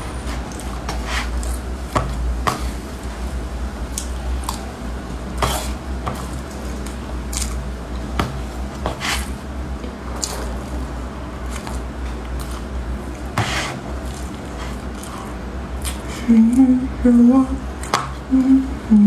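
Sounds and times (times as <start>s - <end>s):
steady low hum: 0.0s - 19.0s
biting and chewing: 5.4s - 10.8s, 11.4s - 16.1s
metal spoon scraping cardboard: 13.4s - 13.8s.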